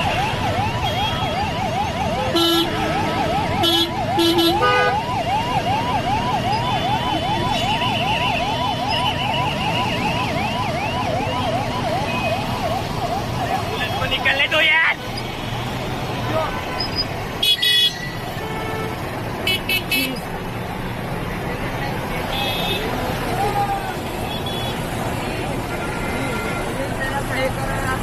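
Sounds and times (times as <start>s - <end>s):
emergency siren yelping: 0.0s - 15.0s
road traffic noise: 0.0s - 28.0s
vehicle horns honking: 2.2s - 5.0s, 15.1s - 20.2s, 22.3s - 23.0s, 24.2s - 27.0s.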